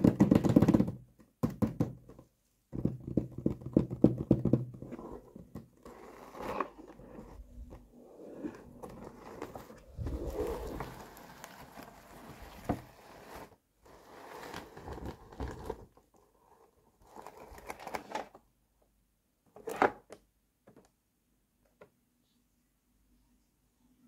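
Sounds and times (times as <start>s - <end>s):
cardboard rubbing and scraping: 4.8s - 18.0s.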